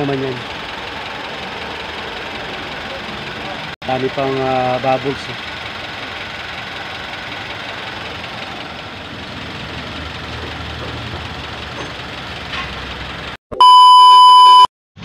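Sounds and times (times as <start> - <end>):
car engine idling: 0.0 - 13.4
loud steady beep: 13.5 - 14.7.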